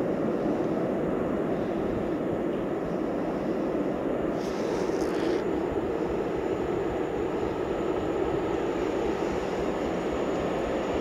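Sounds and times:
freight train rumbling: 0.0 - 11.0.

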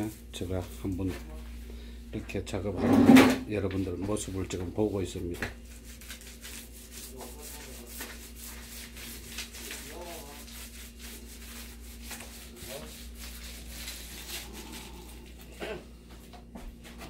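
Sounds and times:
paint roller scratching on wall: 5.8 - 15.3.

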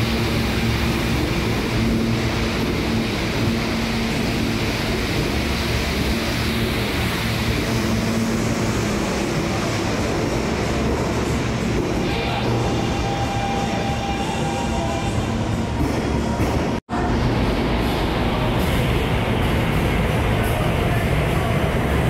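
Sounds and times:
subway wheels roaring on rail: 0.0 - 22.0.

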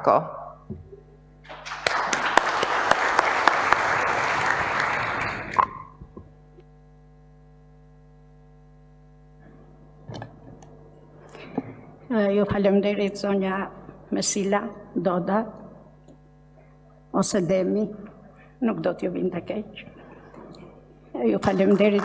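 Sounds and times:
faint steady hum: 0.0 - 22.0
audience applauding: 1.4 - 6.0, 21.4 - 22.0.

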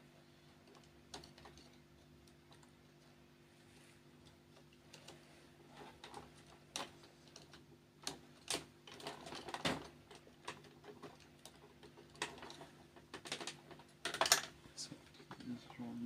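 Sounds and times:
low steady hum: 0.0 - 16.0
plastic and metal parts clicking: 6.0 - 14.6.

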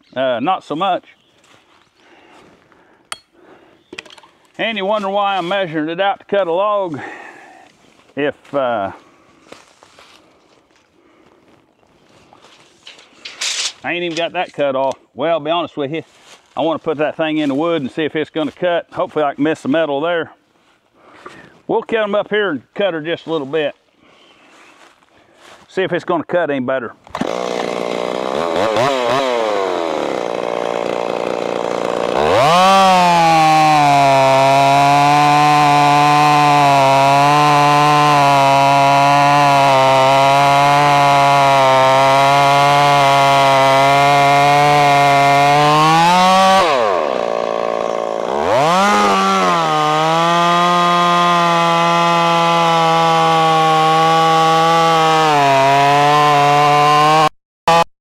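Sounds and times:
chainsaw cutting log: 12.8 - 14.5, 27.1 - 57.9.

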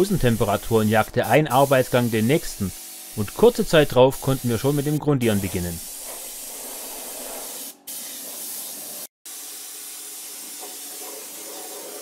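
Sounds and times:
paint spray gun hissing: 0.0 - 12.0.

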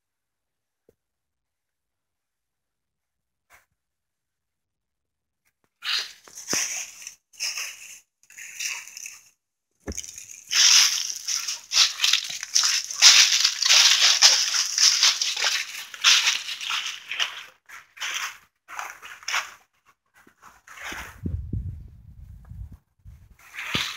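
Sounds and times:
dry leaves crunching underfoot: 5.9 - 9.2, 9.9 - 19.6.

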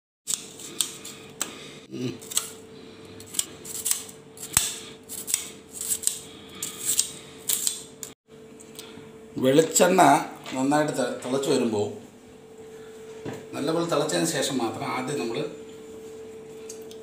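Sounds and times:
faint steady hum: 0.4 - 17.0
onion skin crackling and tearing: 3.2 - 8.1.

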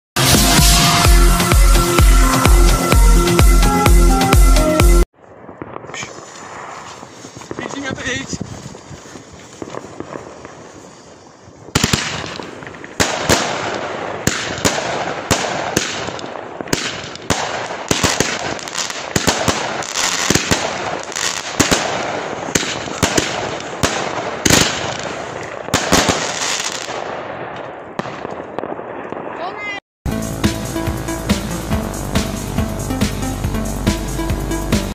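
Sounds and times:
fireworks bangs: 5.2 - 29.8.

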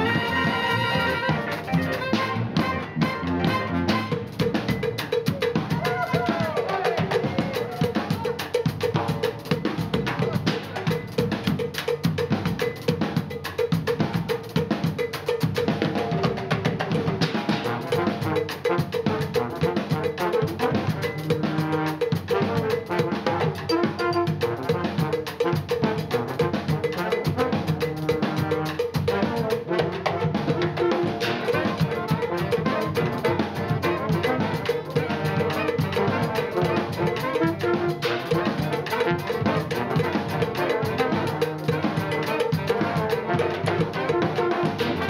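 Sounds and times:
electric guitars: 0.0 - 4.4
brass band playing: 0.0 - 13.3, 14.1 - 45.0
bass drum: 0.0 - 18.4, 26.0 - 45.0
marching snare drum: 0.0 - 45.0.

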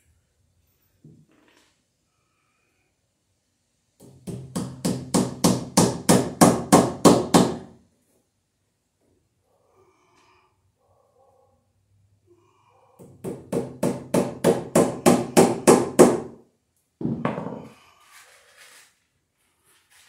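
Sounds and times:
hammer striking into wood: 4.0 - 7.7, 13.0 - 16.4.

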